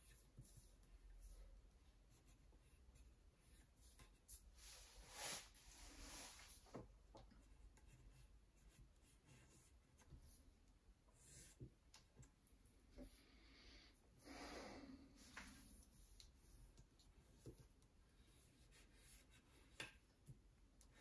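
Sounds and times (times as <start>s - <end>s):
pencil scratching on paper: 0.0s - 4.5s, 7.4s - 10.5s, 11.1s - 11.6s, 15.5s - 20.1s.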